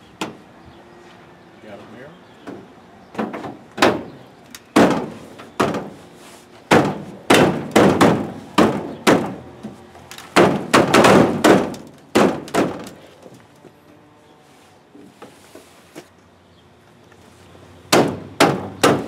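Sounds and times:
heavy thuds of pounding by hand: 0:04.8 - 0:06.0, 0:06.7 - 0:09.4, 0:10.4 - 0:13.0, 0:17.9 - 0:19.0.

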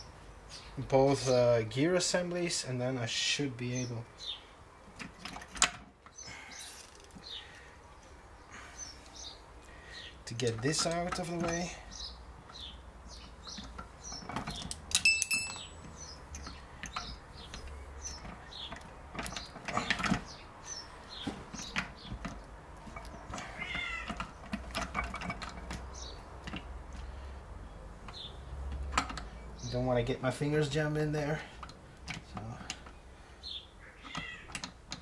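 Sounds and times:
metal clinks of gearbox parts: 0:13.5 - 0:20.8.

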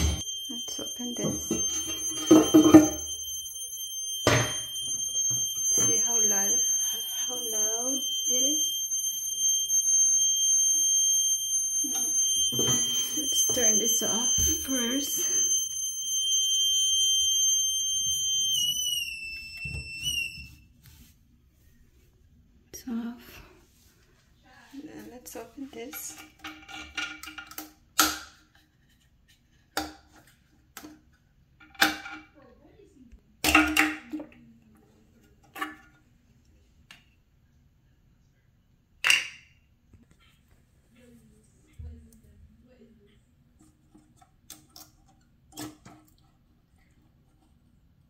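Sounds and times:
toilet fill valve whistling: 0:00.0 - 0:20.7.

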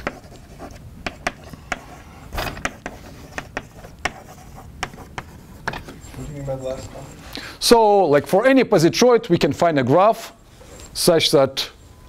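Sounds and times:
chalk tapping and scratching: 0:00.0 - 0:07.2.

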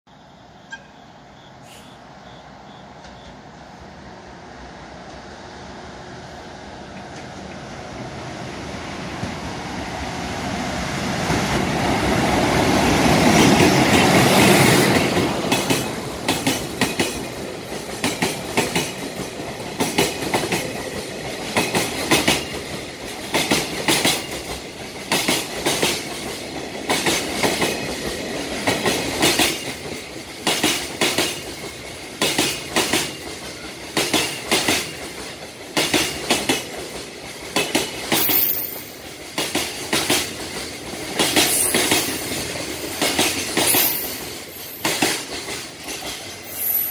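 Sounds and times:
electric locomotive passing: 0:00.2 - 0:46.9
train wheels clicking over rail joints: 0:02.9 - 0:03.4, 0:06.8 - 0:07.9, 0:11.2 - 0:46.9
high wheel squeal: 0:46.4 - 0:46.9.

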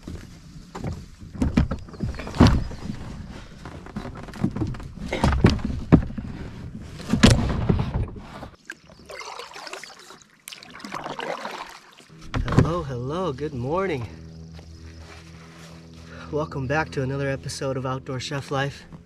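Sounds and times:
kayak paddle splashing in water: 0:08.6 - 0:12.2.

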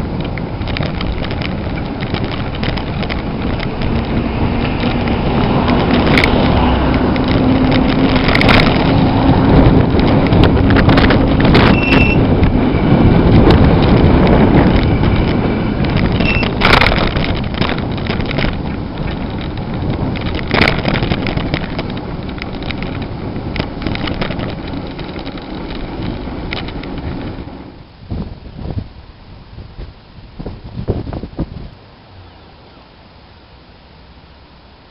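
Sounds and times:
knocks and rattles over bumps: 0:00.0 - 0:28.8
bicycle tyre noise: 0:00.0 - 0:31.7
wind over microphone: 0:00.0 - 0:31.8
short squeaks: 0:11.6 - 0:12.3, 0:16.1 - 0:16.8.

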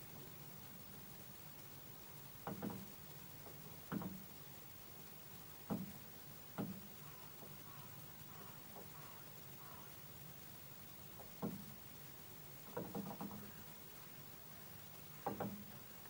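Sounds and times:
bird beak tapping plastic tray: 0:12.7 - 0:13.6, 0:15.2 - 0:15.7.

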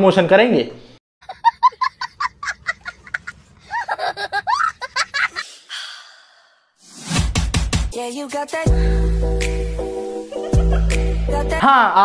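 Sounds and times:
young child laughing: 0:01.2 - 0:05.5
music with heavy beat: 0:07.2 - 0:11.7.

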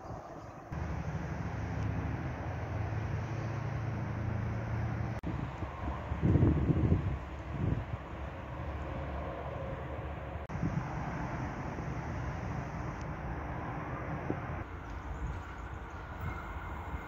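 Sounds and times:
distant traffic: 0:00.0 - 0:17.0
wind hiss: 0:05.2 - 0:17.0.

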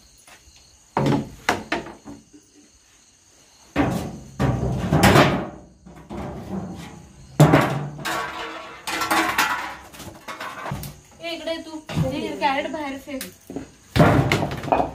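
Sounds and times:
plastic crates clattering and scraping: 0:03.7 - 0:11.1, 0:13.5 - 0:14.9.

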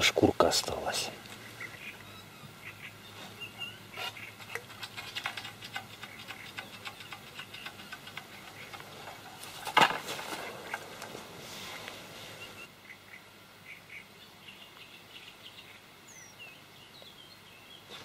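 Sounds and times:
dry reed stems rustling: 0:07.7 - 0:12.3.

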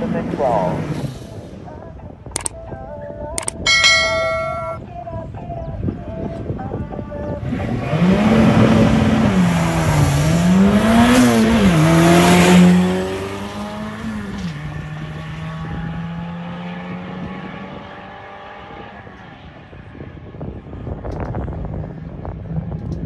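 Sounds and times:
race car engine at full throttle: 0:07.2 - 0:23.0.

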